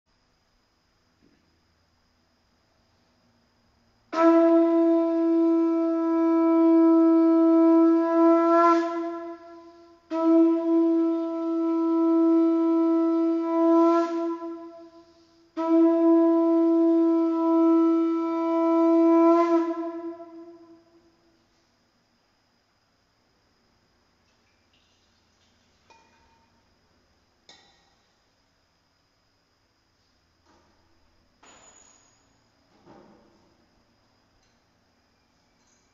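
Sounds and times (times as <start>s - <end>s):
conch shell blasts: 4.1s - 21.0s.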